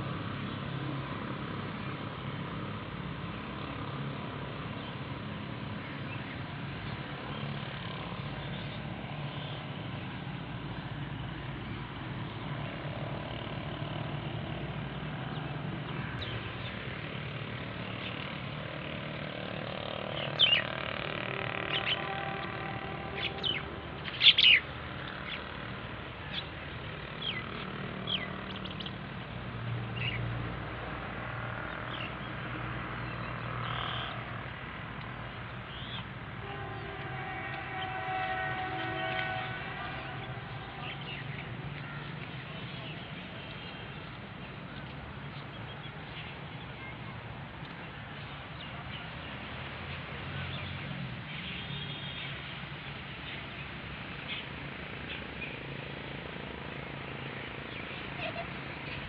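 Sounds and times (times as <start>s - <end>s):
birds chirping: 14.8s - 18.4s, 19.6s - 30.3s, 31.6s - 49.4s.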